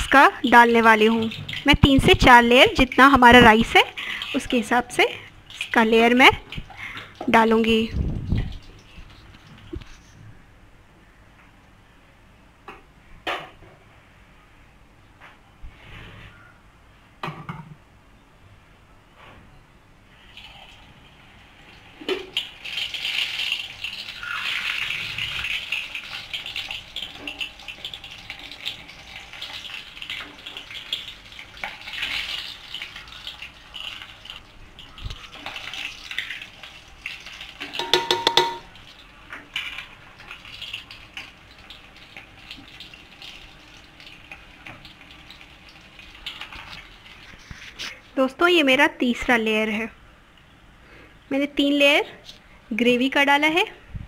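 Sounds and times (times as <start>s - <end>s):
rustling and scraping in pot: 8.1s - 10.3s, 15.7s - 16.4s, 21.9s - 41.4s, 46.1s - 48.3s
steel spoon rattling against pot: 37.7s - 38.8s.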